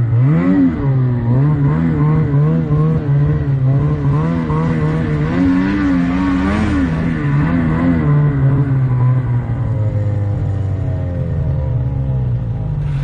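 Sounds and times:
snowmobile engine running: 0:00.0 - 0:11.6.

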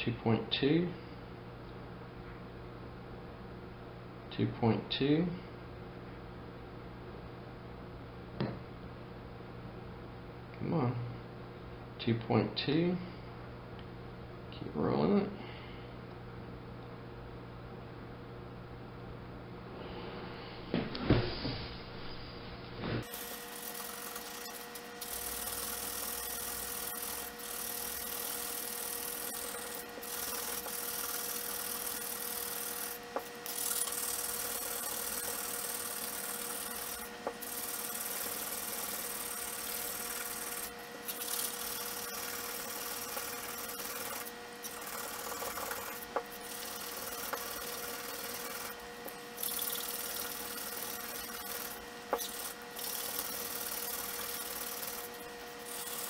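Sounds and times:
abrasive strip rubbing metal: 0:23.1 - 0:48.8, 0:49.5 - 0:56.0.

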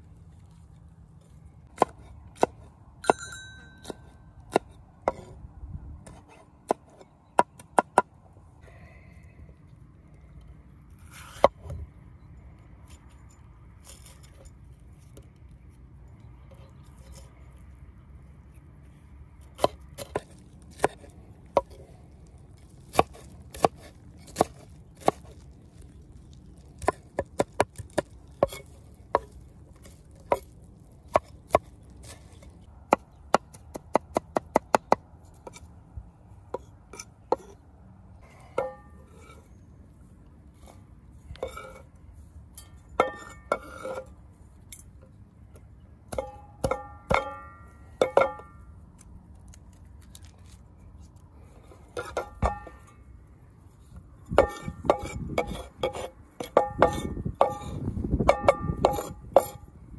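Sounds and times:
metallic clinks: 0:03.0 - 0:04.3.

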